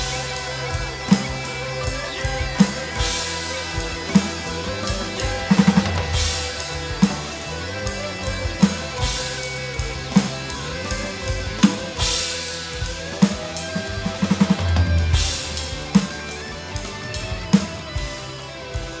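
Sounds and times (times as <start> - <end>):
electronic drum kit playing: 0.0 - 19.0
rock backing track: 0.0 - 19.0.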